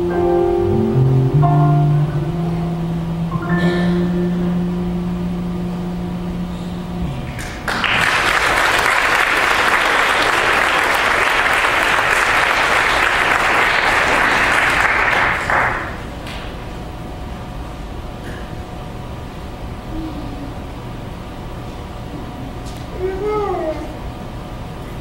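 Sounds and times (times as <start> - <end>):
electric bass guitar note ringing: 0.0 - 7.7
audience applauding: 7.3 - 16.5.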